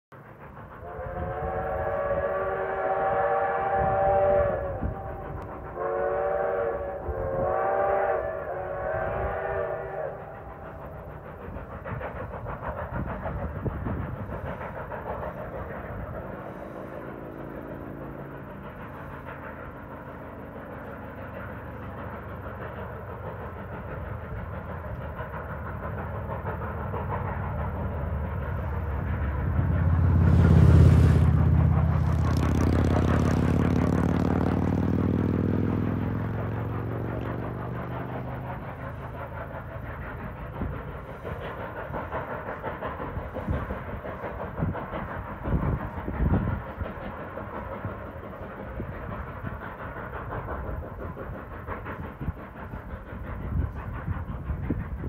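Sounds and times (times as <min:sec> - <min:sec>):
steam locomotive exhaust chuffing: 0:00.1 - 0:55.0
steam locomotive whistle blasts: 0:00.8 - 0:10.8.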